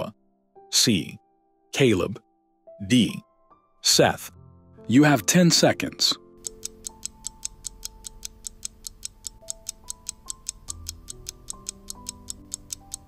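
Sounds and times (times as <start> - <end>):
soft background music: 0.0 - 13.0
timer ticking: 6.4 - 13.0.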